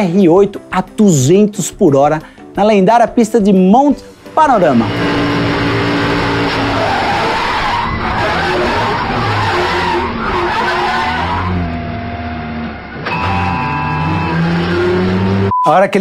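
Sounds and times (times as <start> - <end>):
race car engine: 4.6 - 15.5
tyres squealing and skidding: 4.8 - 15.5.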